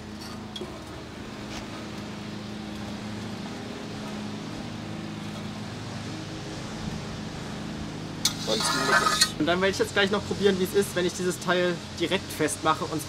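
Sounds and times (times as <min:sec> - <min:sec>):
low motor hum: 0:00.0 - 0:10.6.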